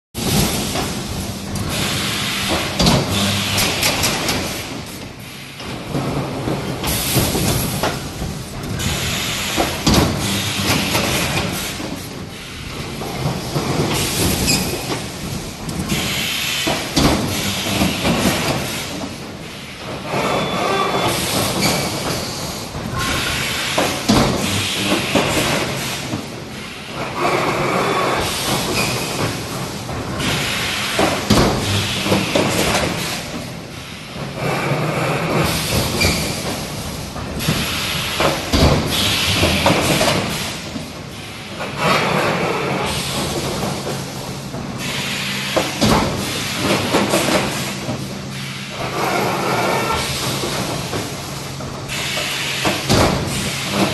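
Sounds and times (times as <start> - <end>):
compressed air hissing: 1.6 - 3.8, 44.8 - 53.8.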